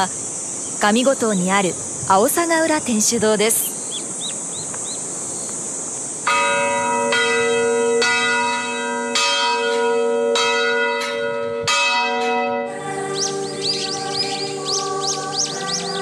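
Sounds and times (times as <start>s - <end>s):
faint high insect hiss: 0.0s - 9.1s, 12.3s - 16.0s
church bell ringing: 6.3s - 16.0s.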